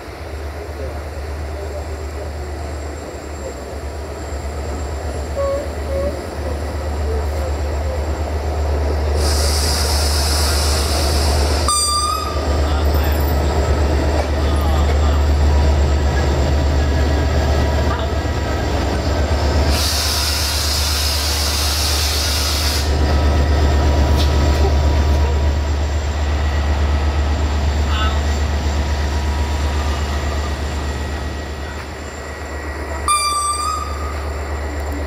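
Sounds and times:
diesel locomotive engine rumbling: 0:00.0 - 0:35.0
air hiss: 0:09.1 - 0:11.6, 0:19.6 - 0:23.0.

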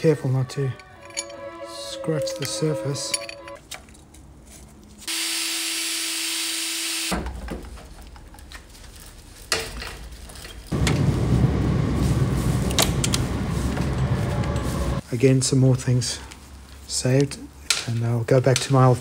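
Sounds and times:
power tool whirring: 0:05.1 - 0:07.1.

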